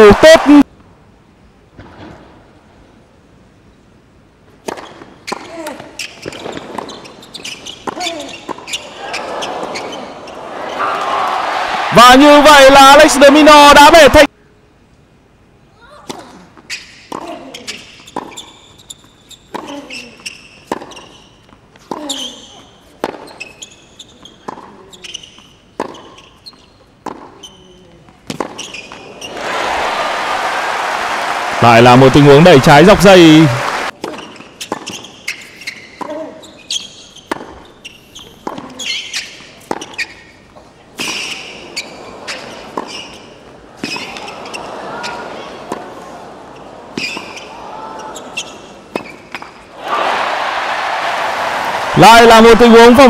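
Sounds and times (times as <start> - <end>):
sneakers squeaking: 4.7 - 11.1, 16.6 - 29.5, 34.0 - 49.6.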